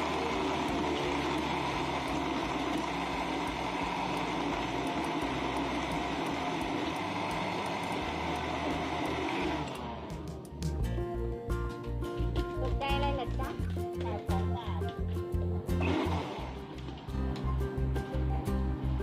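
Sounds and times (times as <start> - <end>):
blender motor whirring: 0.0 - 10.5, 15.7 - 17.4.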